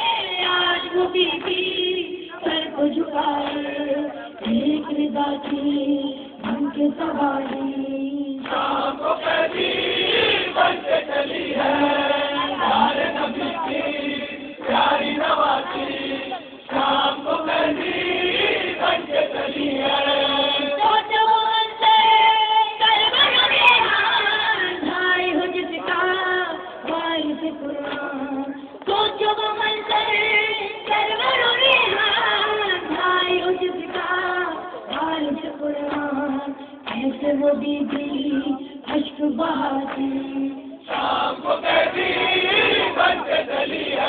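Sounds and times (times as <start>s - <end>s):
men singing a lament: 8.4s - 21.1s, 40.9s - 44.0s.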